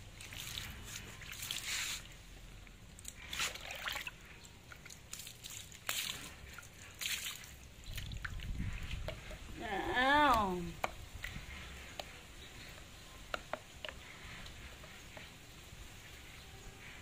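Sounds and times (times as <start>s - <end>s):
water splashing on tiled floor: 0.0s - 2.4s, 3.0s - 11.8s.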